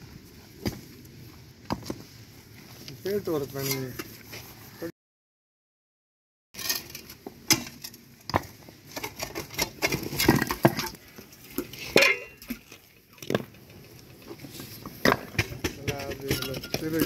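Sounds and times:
spade scraping soil and stones: 0:02.9 - 0:04.7, 0:06.6 - 0:17.0.

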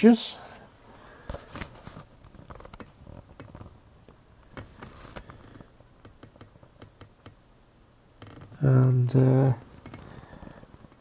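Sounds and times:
paper pages rustling: 0:01.3 - 0:03.7.

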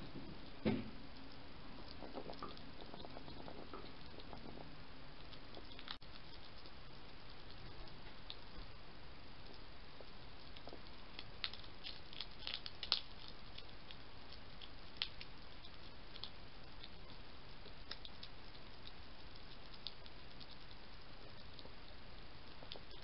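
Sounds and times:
steady hiss: 0:00.0 - 0:23.0
hedgehog crunching dry food: 0:00.2 - 0:08.7, 0:09.4 - 0:23.0.

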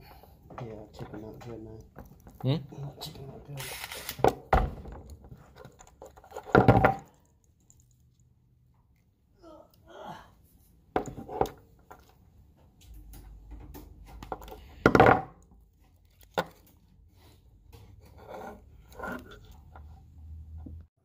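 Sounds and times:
wires and plastic connectors rustling: 0:00.5 - 0:04.3, 0:11.4 - 0:17.1.

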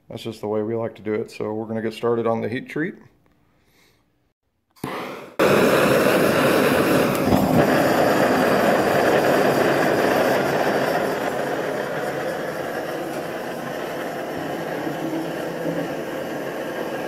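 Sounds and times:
gas hiss: 0:04.8 - 0:17.0
gas torch roar: 0:04.8 - 0:17.0.

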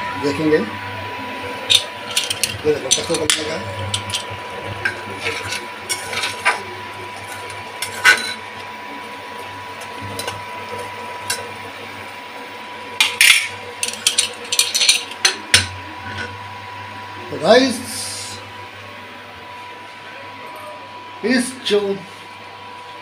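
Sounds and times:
cooktop whine and hum: 0:00.0 - 0:23.0
metal ladle scraping a pot: 0:01.7 - 0:08.6.

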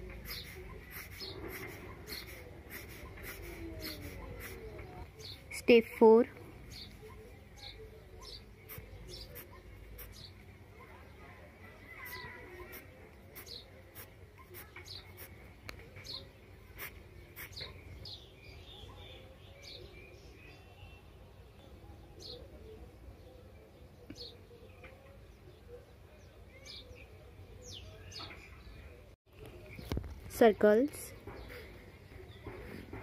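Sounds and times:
faint bird chirps: 0:00.1 - 0:05.8, 0:06.6 - 0:30.1.

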